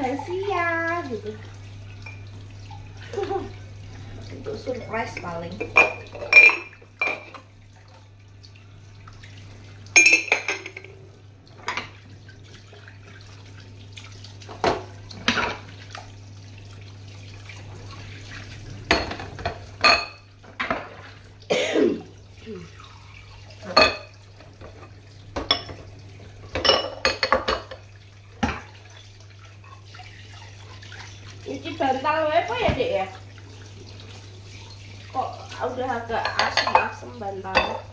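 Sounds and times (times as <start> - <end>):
kitchen tap running: 0.0 - 37.9
dishes clinking in sink: 2.0 - 2.4, 4.6 - 7.5, 9.9 - 11.0, 11.6 - 12.1, 14.4 - 16.0, 18.8 - 22.0, 23.6 - 28.9, 35.2 - 37.9.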